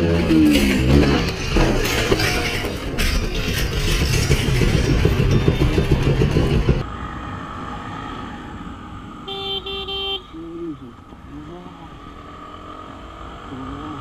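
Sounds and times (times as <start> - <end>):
loud rumbling noise: 0.0 - 7.8
motorcycle riding: 0.0 - 14.0
horn beeps: 9.3 - 10.6.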